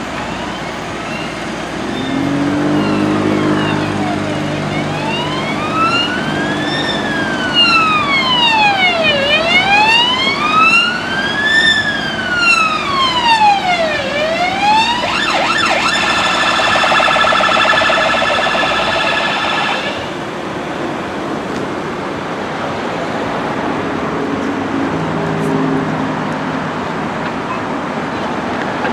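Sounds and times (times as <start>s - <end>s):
ambulance siren wailing: 0.0s - 20.4s
road traffic noise: 0.0s - 28.9s.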